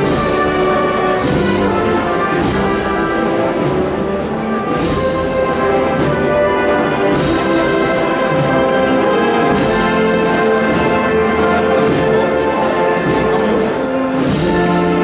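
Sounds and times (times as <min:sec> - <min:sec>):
wind band playing march: 0:00.0 - 0:15.0.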